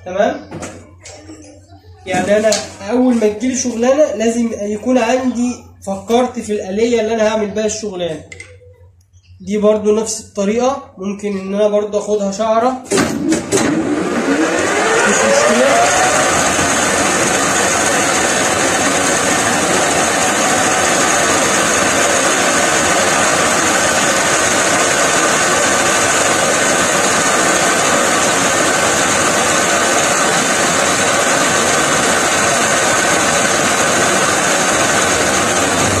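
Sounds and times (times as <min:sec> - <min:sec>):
metal lathe cutting steel: 0:13.4 - 0:36.0.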